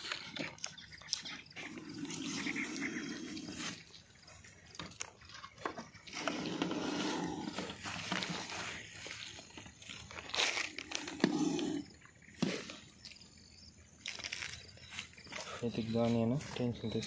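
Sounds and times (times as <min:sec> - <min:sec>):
snake hissing: 0:10.9 - 0:12.8.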